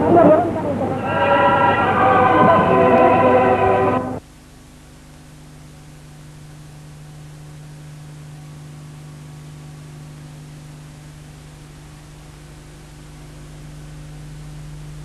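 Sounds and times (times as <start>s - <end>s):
film soundtrack hiss: 0.0s - 15.0s
low electrical hum: 0.0s - 15.0s.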